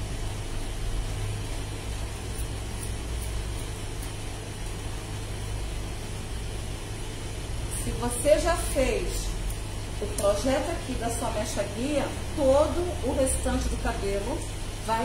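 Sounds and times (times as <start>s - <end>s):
low mechanical hum: 0.0s - 15.0s
scissor snips: 2.3s - 4.8s.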